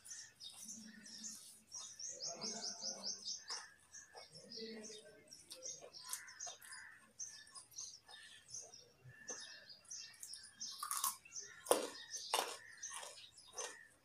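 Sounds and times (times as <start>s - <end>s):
birds chirping: 0.0s - 14.0s
carrot being bitten and chewed: 5.4s - 8.4s, 10.1s - 14.0s.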